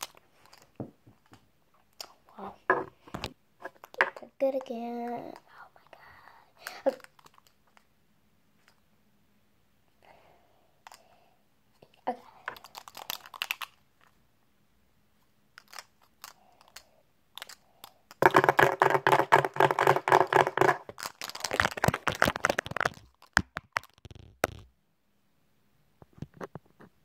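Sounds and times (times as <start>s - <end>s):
fake nails tapping on a tabletop: 18.2s - 20.8s.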